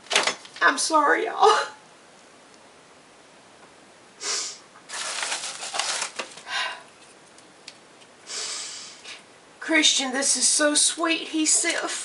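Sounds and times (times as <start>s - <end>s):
woman sniffling and crying: 4.2s - 4.6s, 8.3s - 9.2s.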